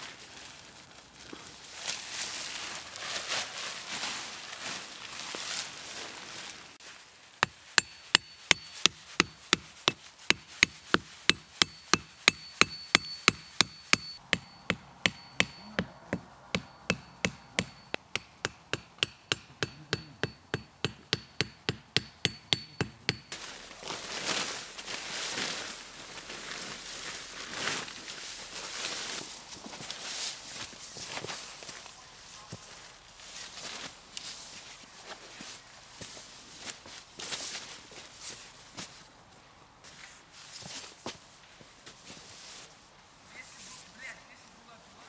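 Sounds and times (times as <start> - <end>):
sleeping mat and tarp rustling: 0.0 - 7.4, 23.3 - 45.0
hammer striking stake: 7.4 - 23.4
high ringing tone: 11.6 - 18.0.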